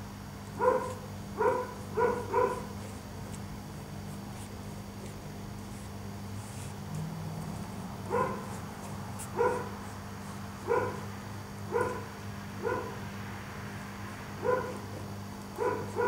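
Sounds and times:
dog barking: 0.6s - 2.8s, 8.1s - 8.6s, 9.3s - 9.9s, 10.6s - 11.1s, 11.7s - 13.0s, 14.4s - 15.0s, 15.6s - 16.0s.

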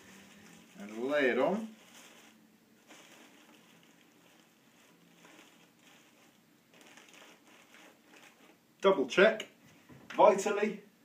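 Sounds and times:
tissue paper rustling: 0.0s - 8.6s.

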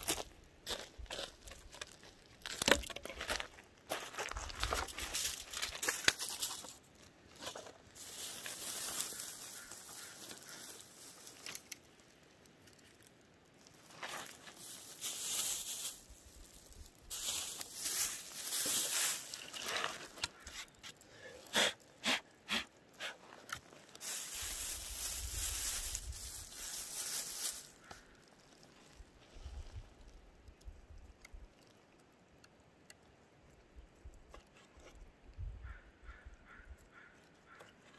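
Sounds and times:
plastic bag rustling: 4.2s - 20.8s, 23.3s - 29.0s.

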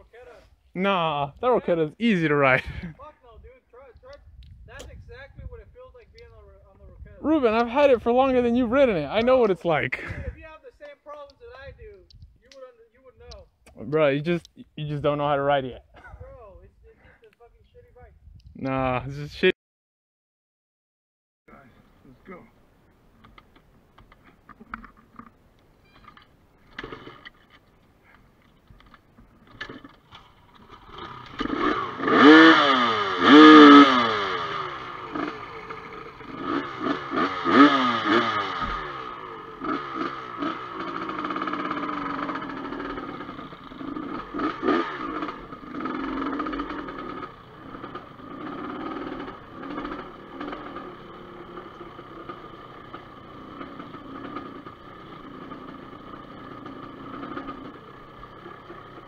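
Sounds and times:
dirt bike engines revving: 0.1s - 3.1s, 7.2s - 10.4s, 29.4s - 59.0s.

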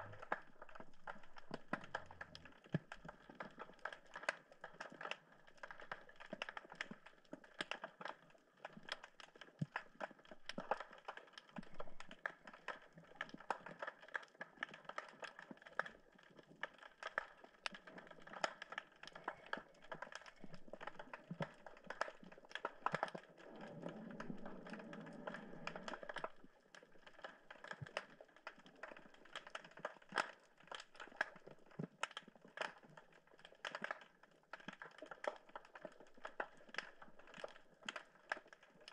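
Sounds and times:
low rumble: 23.3s - 26.5s.

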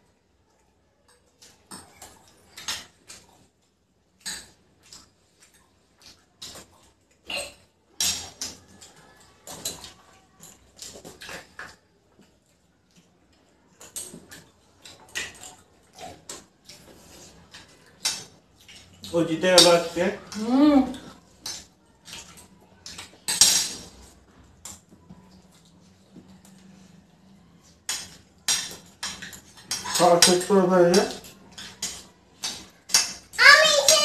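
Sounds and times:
cutlery clinking on plates: 6.4s - 11.8s, 17.4s - 20.0s, 21.4s - 24.8s, 27.7s - 33.4s.

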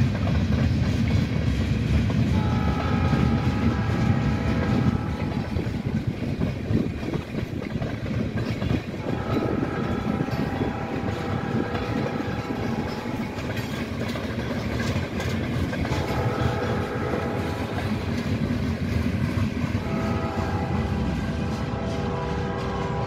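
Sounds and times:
train wheels rumbling on rails: 0.0s - 23.0s
long steady horn tones: 2.3s - 7.2s, 9.0s - 14.1s, 15.8s - 18.5s, 19.7s - 23.0s.

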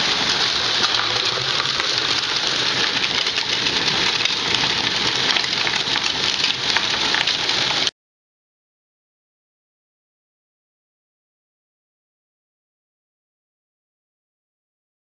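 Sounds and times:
ball mill rattling: 0.0s - 7.9s.

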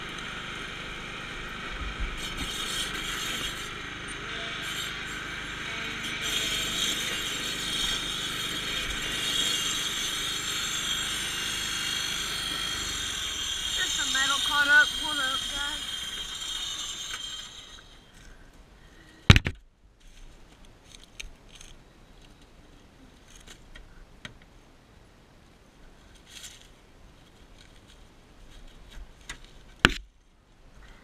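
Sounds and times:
riding mower engine stopping: 0.0s - 9.3s
sticks and dry leaves crackling: 20.0s - 23.8s.

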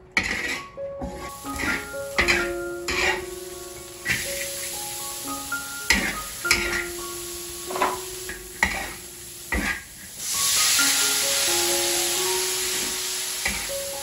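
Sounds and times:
metal spatula scraping a wok: 0.2s - 3.3s, 5.9s - 6.9s, 8.6s - 10.0s
meat sizzling in hot oil: 1.2s - 14.0s.

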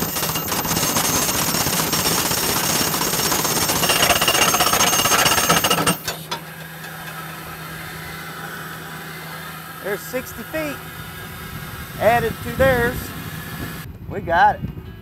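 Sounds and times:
hydraulic hammering: 0.0s - 11.4s.

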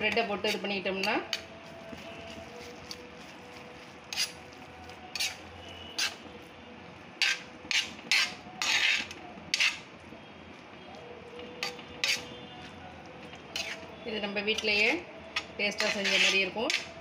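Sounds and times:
spatula clanking on iron griddle: 15.4s - 16.9s.

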